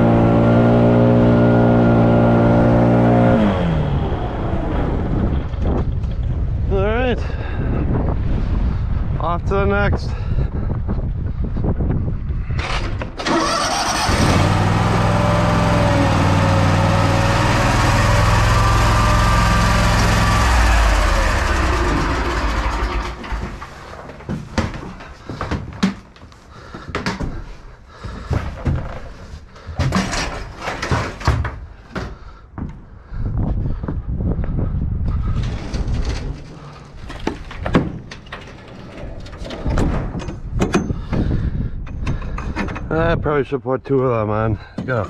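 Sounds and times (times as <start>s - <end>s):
mower engine running: 13.2s - 24.0s.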